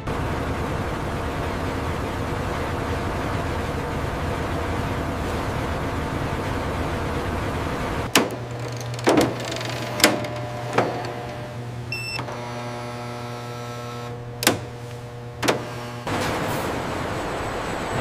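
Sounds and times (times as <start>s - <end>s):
machine electric hum: 0.0s - 18.0s
short electronic beep: 11.9s - 12.2s.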